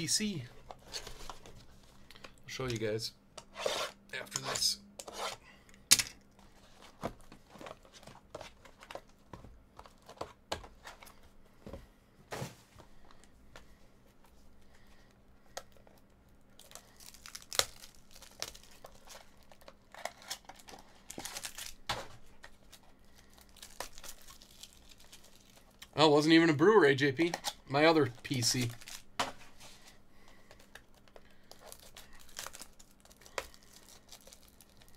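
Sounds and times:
foil wrapping crinkling: 15.7s - 25.8s, 27.2s - 34.9s.

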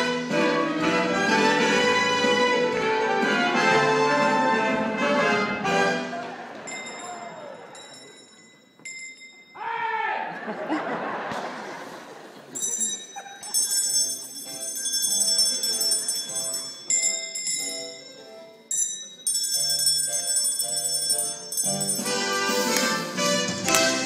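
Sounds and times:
chime-like bell notes playing tune: 6.7s - 9.6s, 12.6s - 23.8s.

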